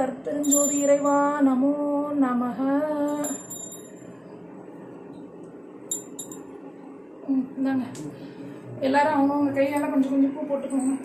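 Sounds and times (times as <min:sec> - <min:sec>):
woman singing slow melody: 0:00.0 - 0:03.6
small brass hand bell ringing: 0:00.4 - 0:01.3, 0:03.1 - 0:04.1, 0:05.9 - 0:06.5.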